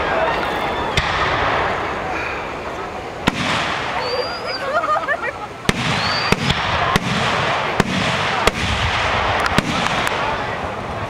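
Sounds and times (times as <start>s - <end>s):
crackling hiss: 0.0s - 11.0s
firework shells bursting: 5.6s - 10.3s.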